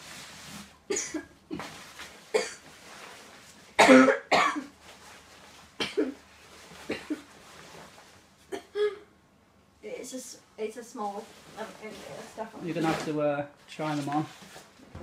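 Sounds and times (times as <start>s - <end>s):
clothing rustling: 0.0s - 3.8s, 4.6s - 8.5s, 10.8s - 15.0s
person coughing: 0.9s - 1.7s, 2.3s - 2.6s, 3.8s - 4.7s, 5.8s - 6.2s, 6.9s - 7.3s.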